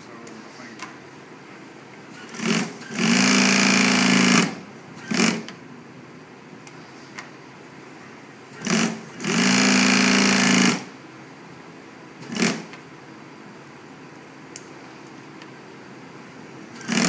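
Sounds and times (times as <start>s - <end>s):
sewing machine stitching: 2.2s - 4.5s, 16.8s - 17.0s.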